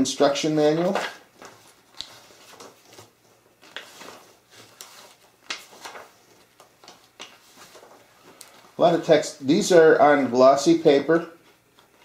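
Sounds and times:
paper pages rustling: 0.2 - 9.2.

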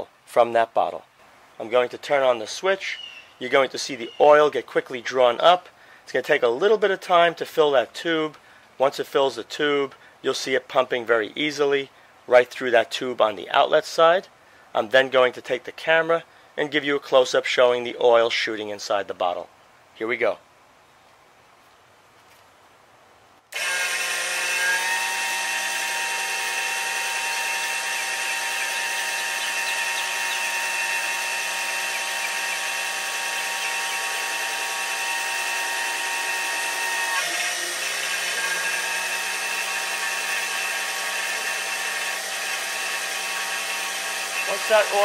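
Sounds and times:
electric pump motor whine: 23.5 - 45.0.

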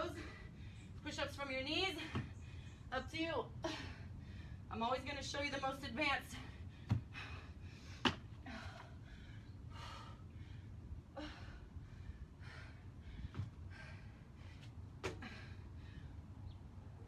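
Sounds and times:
woman gasping breaths: 6.4 - 16.2.

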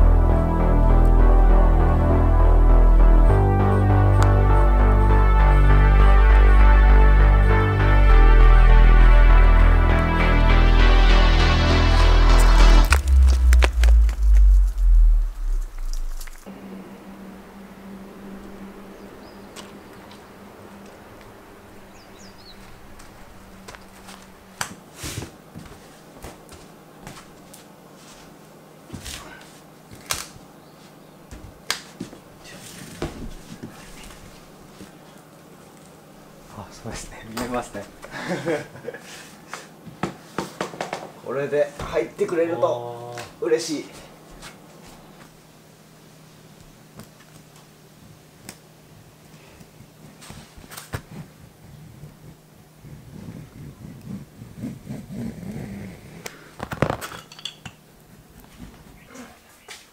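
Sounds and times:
low hum: 0.0 - 24.6.

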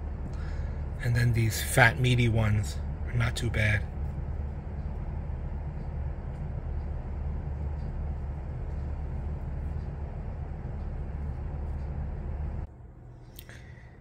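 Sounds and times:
low rumble and hum: 0.0 - 14.0.

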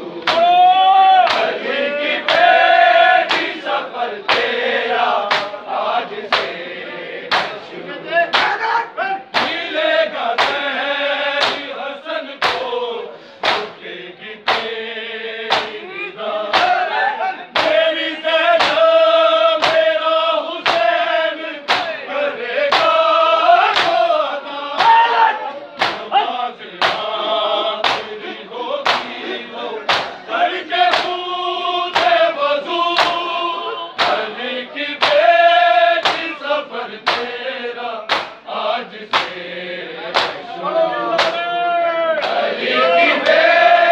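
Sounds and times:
men reciting a lament in chorus: 0.0 - 43.9
chest-beating slaps: 0.2 - 0.5, 1.2 - 1.6, 2.2 - 2.6, 3.3 - 4.6, 5.2 - 5.6, 6.2 - 6.6, 7.3 - 7.6, 8.3 - 8.6, 9.4 - 9.7, 10.4 - 10.7, 11.4 - 11.7, 12.4 - 12.7, 13.4 - 13.8, 14.4 - 14.8, 15.5 - 15.8, 16.5 - 16.8, 17.6 - 17.9, 18.6 - 18.9, 19.6 - 19.9, 20.6 - 21.0, 21.6 - 22.0, 22.7 - 23.0, 23.7 - 24.0, 25.8 - 26.1, 26.8 - 27.1, 27.8 - 28.2, 28.8 - 29.2, 29.8 - 30.2, 30.9 - 31.2, 31.9 - 32.2, 33.0 - 33.2, 34.0 - 34.3, 35.0 - 35.3, 36.0 - 36.4, 37.0 - 37.4, 38.0 - 38.5, 39.1 - 39.4, 40.1 - 40.4, 41.2 - 41.4, 42.2 - 42.4.

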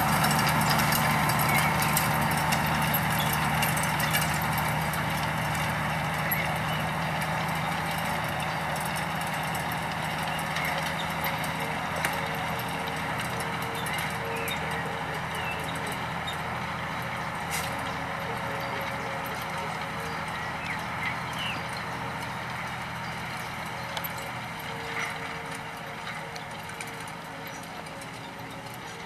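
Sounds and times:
engine running under load: 0.0 - 29.0
tedder tines clattering: 0.0 - 29.0
bird chirps: 20.0 - 21.8.

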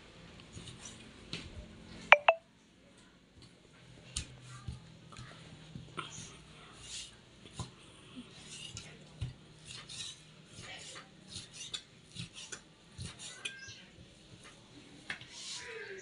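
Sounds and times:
knife scraping and rasping: 8.4 - 8.8, 9.6 - 13.6.

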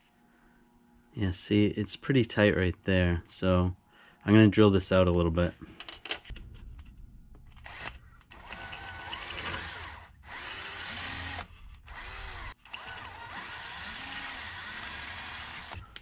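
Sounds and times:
cordless drill boring plastic: 7.7 - 15.9.

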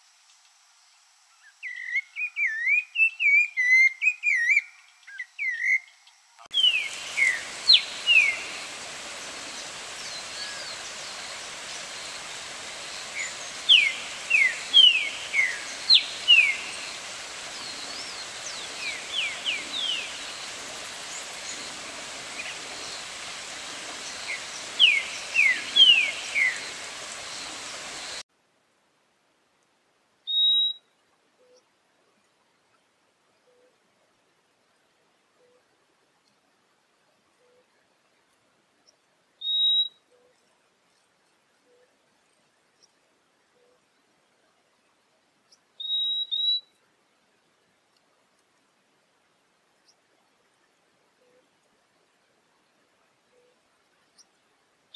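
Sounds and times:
steady background hiss: 0.0 - 54.9
thrush warbling song: 6.5 - 28.2.

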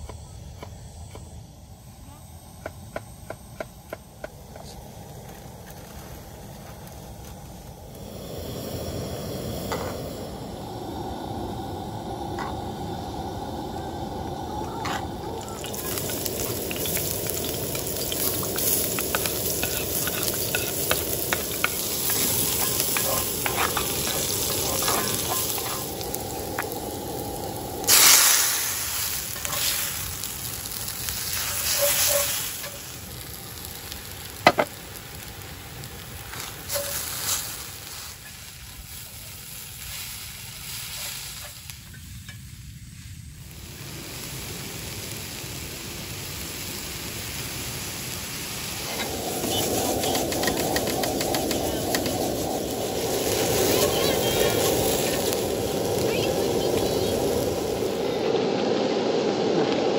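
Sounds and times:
food sizzling in hot oil: 4.4 - 59.9.

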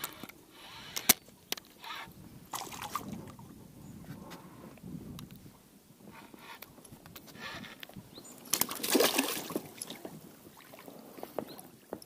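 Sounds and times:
fish thrashing and splashing: 2.5 - 3.2, 8.4 - 10.8.

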